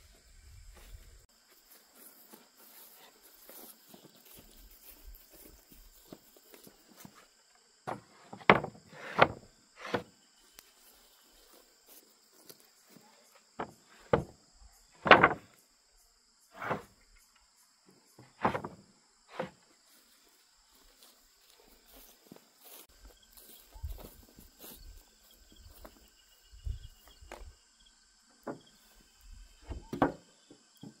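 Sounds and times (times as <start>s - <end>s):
wooden planks knocking and clattering: 7.8s - 10.1s, 13.6s - 15.6s, 18.2s - 18.8s, 29.6s - 31.0s.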